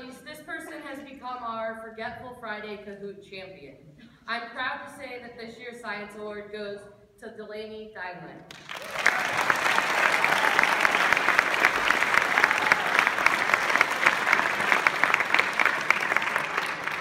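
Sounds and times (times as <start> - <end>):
audience applauding: 8.5 - 17.0.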